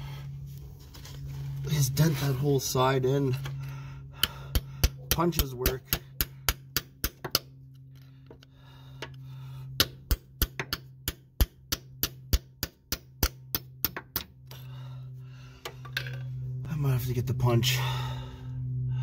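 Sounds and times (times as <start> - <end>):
steady low hum: 0.0 - 19.0
hammer striking metal tool: 4.2 - 7.5, 9.8 - 14.7.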